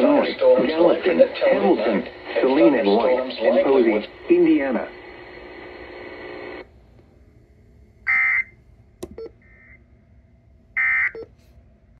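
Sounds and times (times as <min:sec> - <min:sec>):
broadcast voice over radio: 0:00.0 - 0:05.3
buzzing digital squawks: 0:08.1 - 0:08.5.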